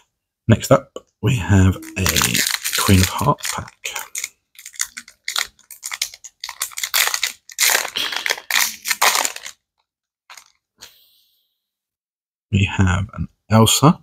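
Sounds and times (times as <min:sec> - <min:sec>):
foil wrapper crinkling: 0:01.8 - 0:10.6.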